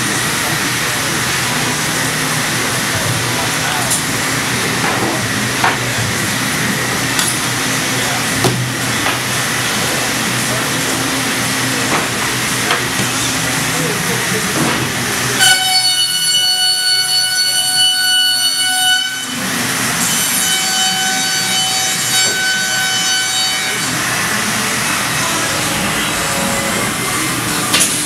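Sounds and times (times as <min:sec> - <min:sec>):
machining centre running: 0:00.0 - 0:28.0
workshop noise: 0:00.0 - 0:28.0
high-pitched whine: 0:23.9 - 0:28.0.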